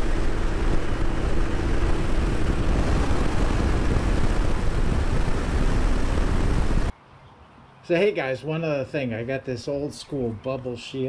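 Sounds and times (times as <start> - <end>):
motorcycle engine running: 0.0 - 6.9
wind rush over microphone: 0.0 - 6.9.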